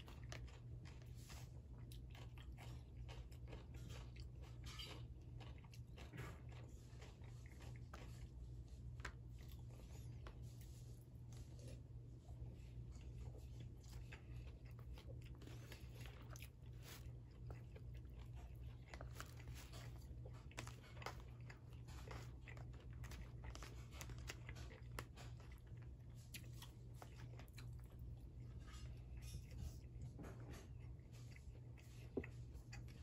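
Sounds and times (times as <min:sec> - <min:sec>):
chewing and mouth sounds: 0:00.0 - 0:33.0.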